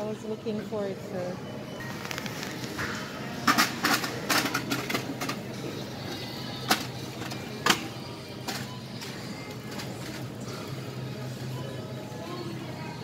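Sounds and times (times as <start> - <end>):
quiet background music: 0.0 - 13.0.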